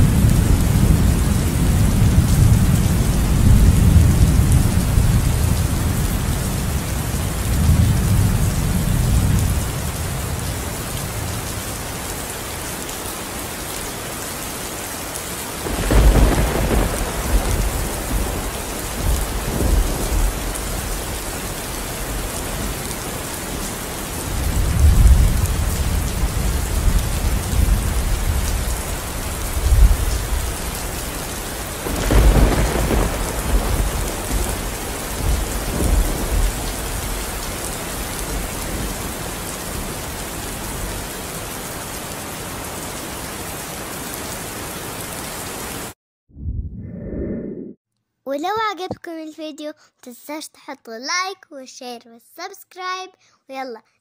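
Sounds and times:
rumbling thunder: 0.0 - 10.5, 15.6 - 21.3, 24.2 - 30.8, 31.5 - 39.1
steady rain: 0.0 - 46.0
sharp thunderclap: 15.6 - 21.2, 31.8 - 37.2.

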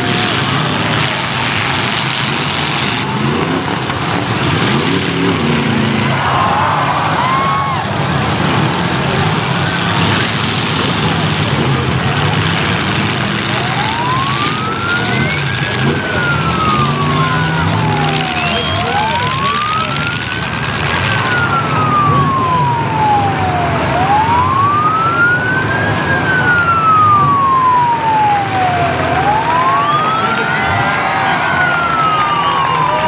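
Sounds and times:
siren wailing: 0.0 - 33.0
steady noisy background: 0.0 - 33.0.

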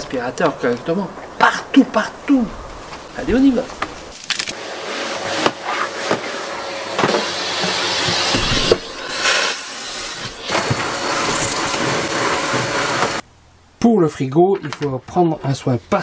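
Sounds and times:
vacuum cleaner running: 4.5 - 13.2.

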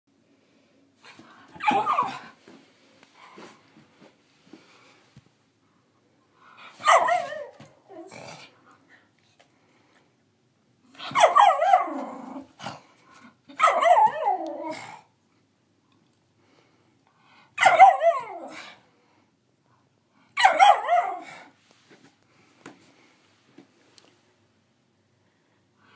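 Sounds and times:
puppy half-barking half-howling: 1.6 - 2.3, 6.8 - 7.6, 11.0 - 12.5, 13.5 - 15.0, 17.6 - 18.7, 20.4 - 21.4.

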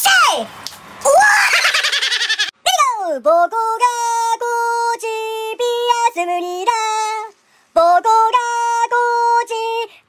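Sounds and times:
high-pitched voice singing: 2.6 - 10.0.

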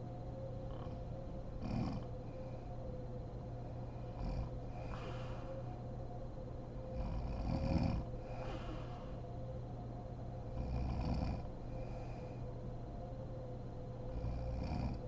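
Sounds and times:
woman snoring: 1.6 - 2.1, 7.0 - 9.2, 10.6 - 11.5, 14.1 - 15.0
soft breaths: 3.6 - 6.2, 6.9 - 9.7, 10.5 - 12.9.

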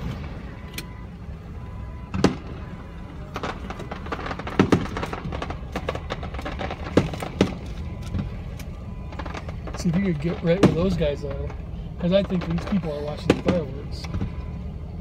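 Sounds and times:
fireworks booming: 1.4 - 14.6
fireworks crackling: 2.1 - 14.3.

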